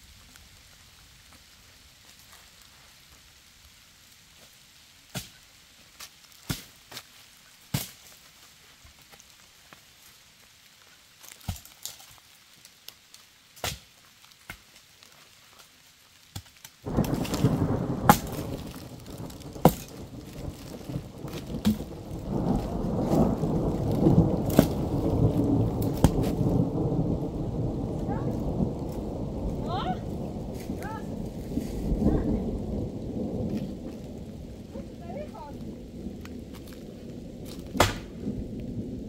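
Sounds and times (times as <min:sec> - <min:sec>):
dry branches snapping: 0:16.3 - 0:26.6, 0:36.2 - 0:36.8, 0:37.4 - 0:38.2
thunder rumbling: 0:16.8 - 0:39.0.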